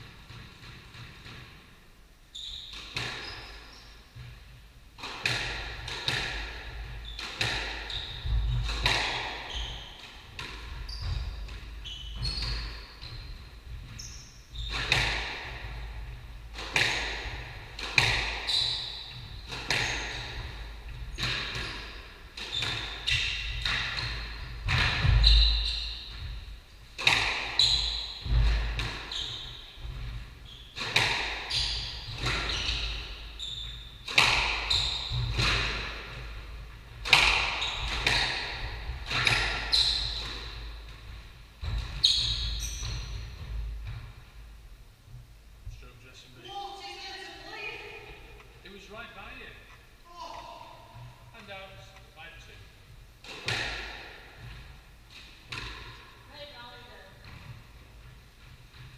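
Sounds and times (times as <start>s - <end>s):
squash ball hitting rackets and walls: 0.0s - 1.8s, 2.4s - 44.5s, 53.2s - 58.9s
shoes squeaking on wooden floor: 2.3s - 4.5s, 6.9s - 15.9s, 17.7s - 44.0s.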